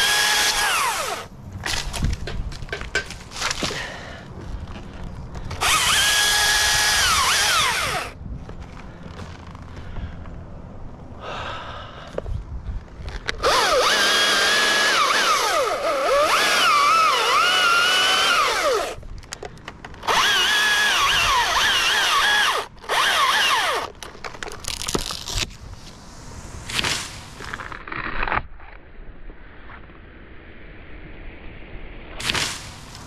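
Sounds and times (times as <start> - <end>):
chainsaw cutting wood: 0.0 - 1.9, 5.5 - 8.2, 13.3 - 19.0, 20.0 - 24.0.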